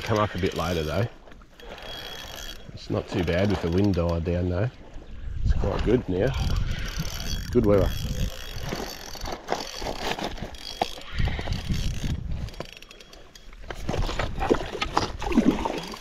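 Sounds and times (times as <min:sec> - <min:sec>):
fishing reel ratchet clicking: 0:00.0 - 0:04.2, 0:06.3 - 0:13.7
wind rumble on microphone: 0:05.0 - 0:08.9, 0:10.2 - 0:12.7.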